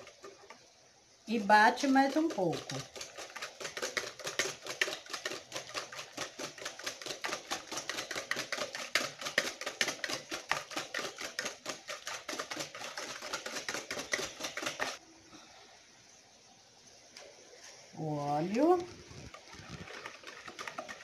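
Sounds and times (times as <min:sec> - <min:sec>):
whisk clicking against a bowl: 0:01.5 - 0:15.0, 0:19.3 - 0:21.0.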